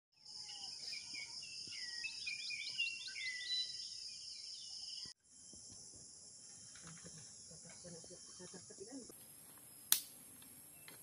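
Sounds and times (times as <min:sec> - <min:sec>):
bird calling: 0:00.4 - 0:05.1.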